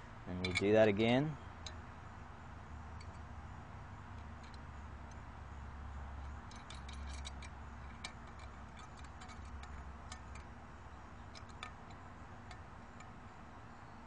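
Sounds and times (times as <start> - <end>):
metal-on-metal clicks and taps: 0.4 - 0.7, 4.2 - 5.2, 6.2 - 10.5, 11.2 - 13.2.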